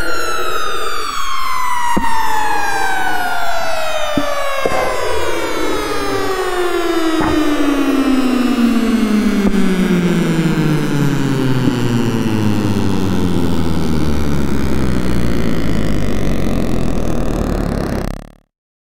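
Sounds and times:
noisy wash: 0.0 - 15.0
droning tone sliding downward: 0.0 - 18.4.

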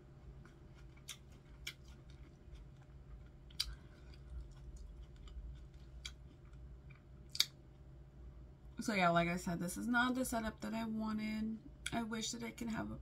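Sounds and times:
chewing salad: 0.1 - 7.6.

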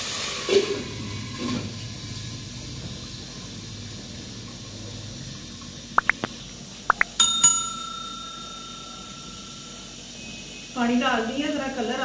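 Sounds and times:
notification bell ringing: 6.9 - 9.8.

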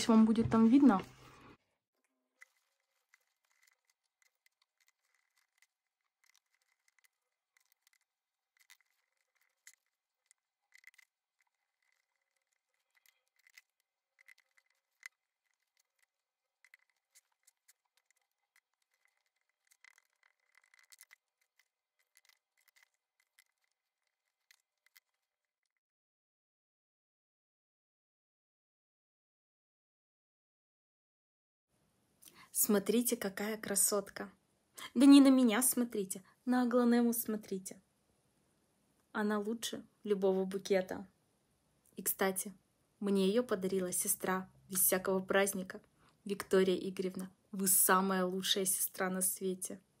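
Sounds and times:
potting mix rustling and crackling: 0.0 - 25.3.

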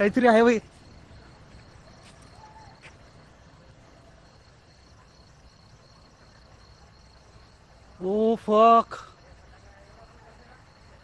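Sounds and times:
crickets chirping: 0.0 - 11.0
low background noise: 0.0 - 11.0.

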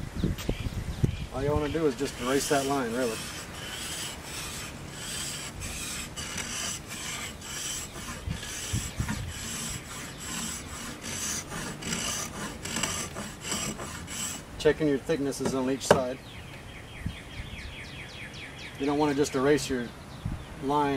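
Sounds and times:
hand tool rasping wood: 1.6 - 14.6, 15.3 - 16.1.

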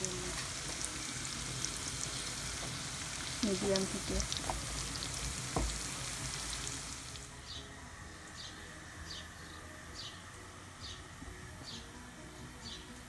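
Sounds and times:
onions sizzling in hot oil: 0.0 - 7.4.

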